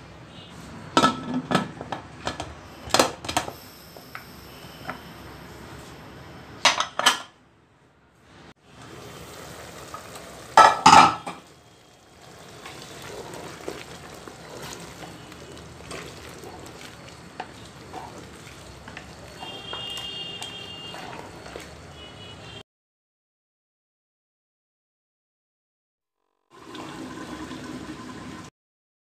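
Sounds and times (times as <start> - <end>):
frying sizzle: 8.6 - 22.6
pressure cooker clanking: 10.6 - 11.4
wooden spoon stirring curry: 11.4 - 22.1.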